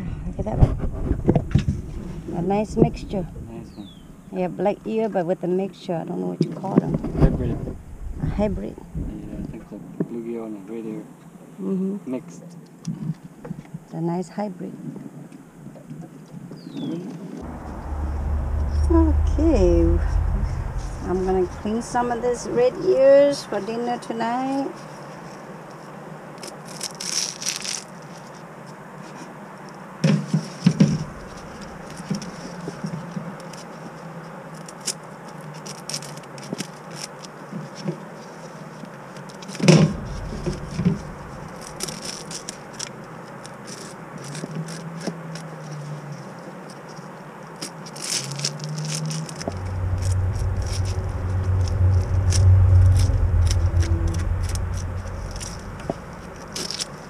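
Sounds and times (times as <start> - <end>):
loud low rumble: 0.0 - 4.6, 6.9 - 9.6, 17.4 - 23.0, 39.7 - 42.0, 49.4 - 57.0.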